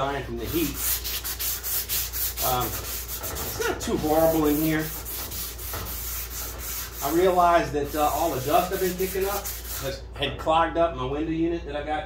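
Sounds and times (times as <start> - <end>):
hand sanding rasping strokes: 0.3 - 10.0.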